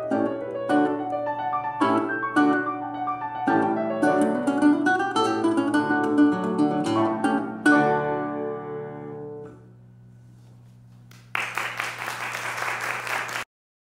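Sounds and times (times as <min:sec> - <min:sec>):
piano and guitar chord ringing: 0:00.0 - 0:09.8
audience applause: 0:11.1 - 0:13.5.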